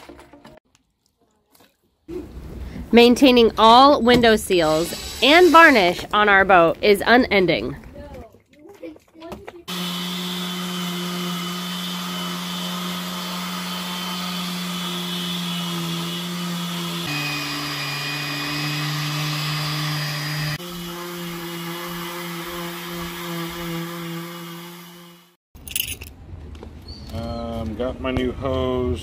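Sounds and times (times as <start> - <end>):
electric sander humming: 9.7 - 25.4.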